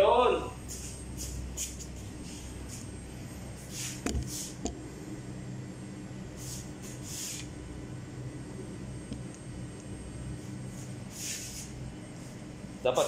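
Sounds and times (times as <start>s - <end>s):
low room hum: 0.0s - 13.0s
short hissing rustles: 0.6s - 2.9s, 3.6s - 4.6s, 6.4s - 7.5s, 10.7s - 12.4s.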